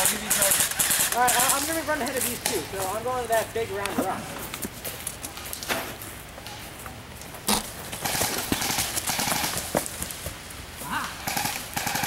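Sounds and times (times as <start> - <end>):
footsteps running on dry leaves: 0.0 - 6.8, 7.5 - 11.5
brush rustling: 0.0 - 11.2
sharp crack: 0.0 - 12.0.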